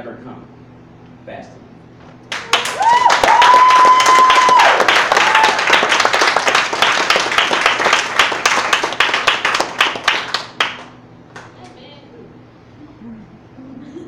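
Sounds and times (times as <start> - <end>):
audience clapping: 2.2 - 11.5
high cheer: 2.3 - 10.5.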